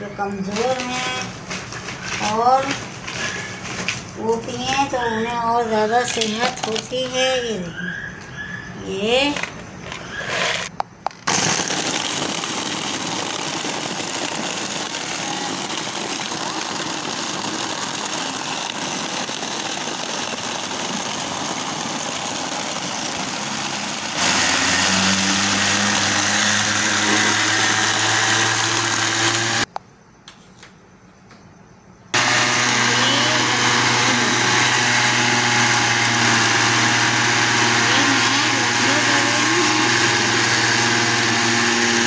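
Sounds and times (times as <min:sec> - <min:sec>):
electric blender crushing ice: 0:00.5 - 0:04.9, 0:06.0 - 0:07.2, 0:10.2 - 0:29.7, 0:32.2 - 0:42.0.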